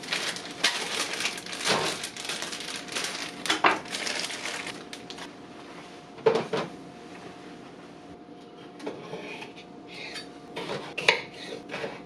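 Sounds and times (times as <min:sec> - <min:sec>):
plastic bags rustling: 0:00.0 - 0:05.3.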